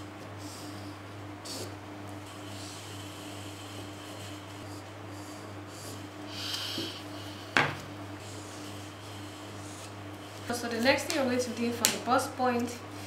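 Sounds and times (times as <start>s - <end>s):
steady low hum: 0.0s - 13.0s
marker drawing on paper: 2.4s - 7.0s, 8.2s - 10.4s.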